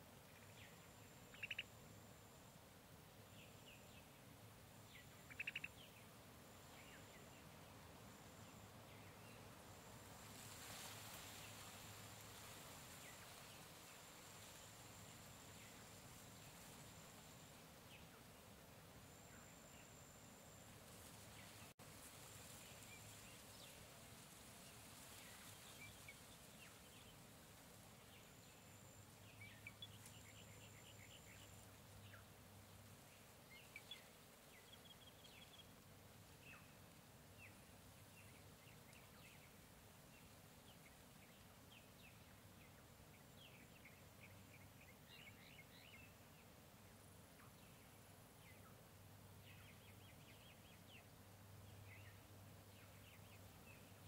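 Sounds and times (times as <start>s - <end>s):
background hiss: 0.0s - 54.0s
bird chirps and calls: 1.3s - 1.7s, 5.3s - 6.0s.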